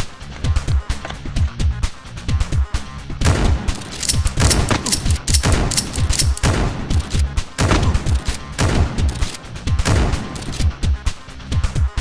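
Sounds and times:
background music: 0.0 - 12.0
gunfire bursts with thumps: 3.2 - 10.9.

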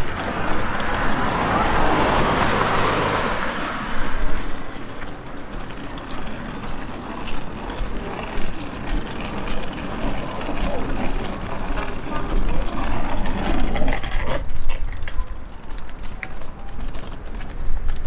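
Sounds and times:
people's voices: 0.0 - 14.4
traffic: 0.0 - 18.0.

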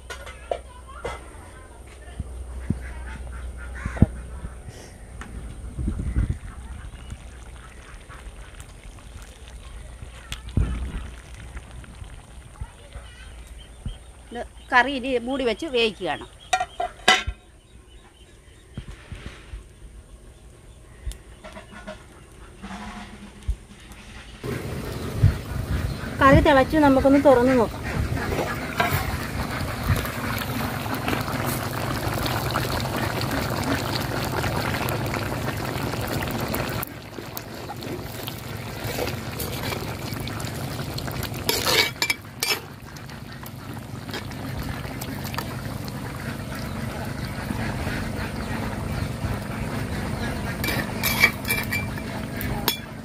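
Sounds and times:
curry bubbling in a pot: 5.6 - 14.1, 24.4 - 53.0.

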